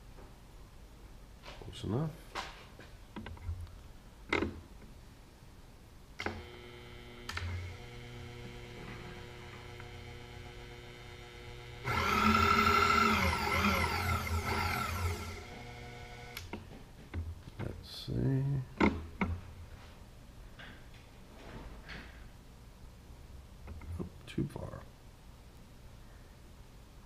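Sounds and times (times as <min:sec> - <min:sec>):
faint machine hum: 0:05.4 - 0:21.5
power feed motor whining: 0:06.2 - 0:16.5.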